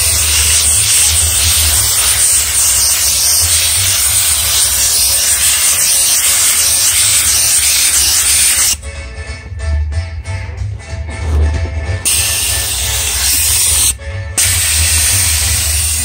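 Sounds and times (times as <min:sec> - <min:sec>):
steam cleaner hissing: 0:00.0 - 0:08.8, 0:12.1 - 0:16.0.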